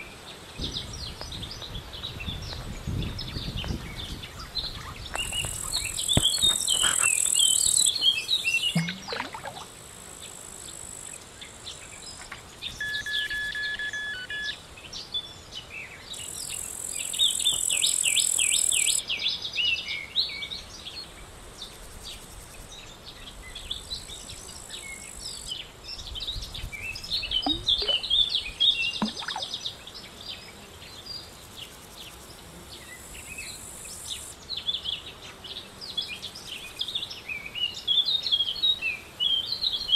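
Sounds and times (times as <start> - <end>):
songbirds chirping: 0.0 - 12.9, 13.7 - 39.9
high-pitched insect buzzing: 5.1 - 8.1, 16.2 - 19.0.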